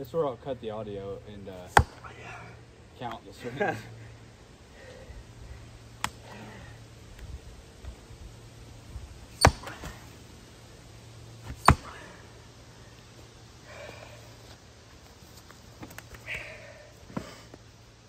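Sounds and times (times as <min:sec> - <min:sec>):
splitting tool striking log: 0:01.7 - 0:02.1, 0:09.4 - 0:09.8, 0:11.5 - 0:12.0.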